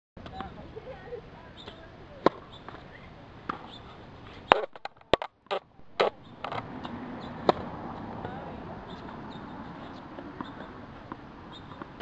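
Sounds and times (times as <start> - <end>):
tennis ball bouncing on hard court: 1.6 - 2.8, 3.4 - 3.8, 6.0 - 12.0
racket striking ball: 1.7 - 2.8, 3.4 - 3.8, 4.5 - 7.7.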